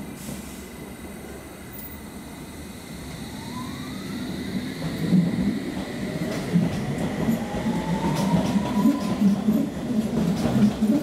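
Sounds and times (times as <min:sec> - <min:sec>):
electric train traction whine: 0:00.0 - 0:11.0
wheels clattering on track: 0:04.8 - 0:11.0.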